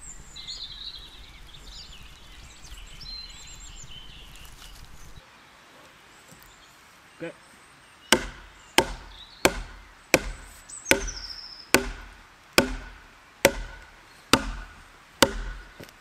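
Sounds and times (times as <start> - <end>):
wood-on-wood knocks: 8.1 - 11.2, 11.8 - 16.0.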